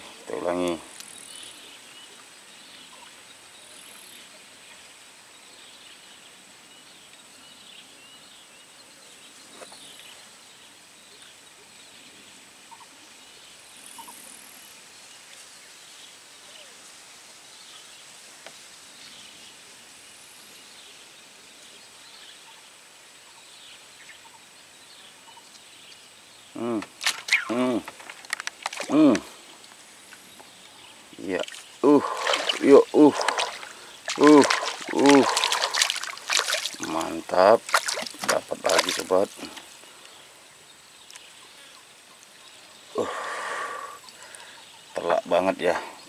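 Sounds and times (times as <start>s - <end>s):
insects droning: 0.0s - 46.0s.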